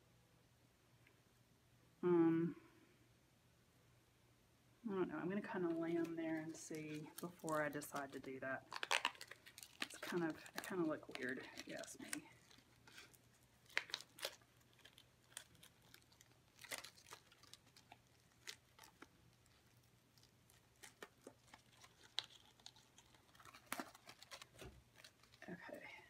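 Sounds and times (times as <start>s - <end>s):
decorations rustling and clicking: 5.5s - 19.6s
crinkly mesh ribbon: 5.5s - 26.0s.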